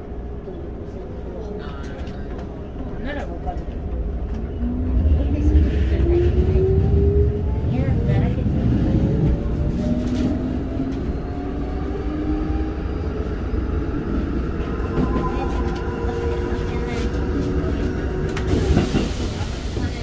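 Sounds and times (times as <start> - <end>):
wheels rumbling on rail: 0.0 - 20.0
rail joint clicks: 14.1 - 19.9.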